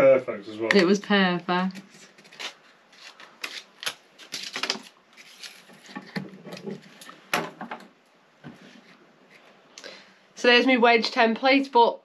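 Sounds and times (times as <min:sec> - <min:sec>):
paper rustling: 0:01.8 - 0:07.3.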